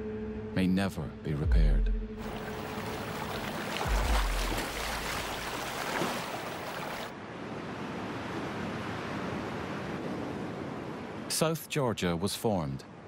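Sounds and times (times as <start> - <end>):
water splashing off whale tail: 2.2 - 7.1
deep low thud: 3.9 - 4.7.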